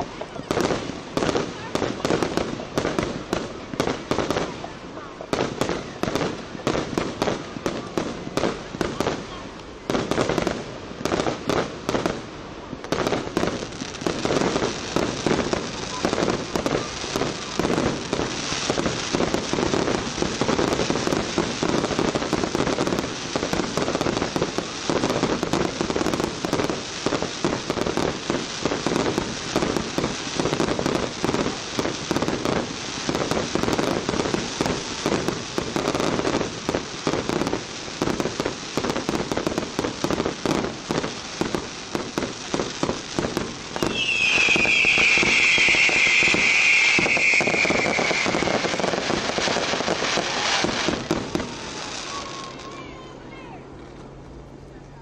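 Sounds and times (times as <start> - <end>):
fireworks crackling and popping: 0.0 - 54.4
high whistling tone: 43.8 - 48.6.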